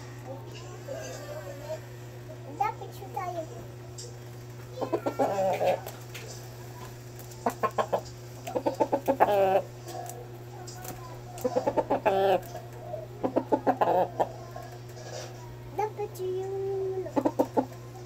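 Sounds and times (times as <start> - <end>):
rooster clucking: 4.8 - 6.0, 7.4 - 15.3, 17.0 - 18.0.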